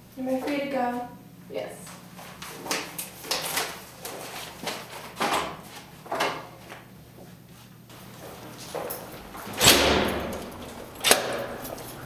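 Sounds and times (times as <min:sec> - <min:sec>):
shuffling footsteps: 0:06.6 - 0:12.0
chair moving: 0:07.9 - 0:12.0.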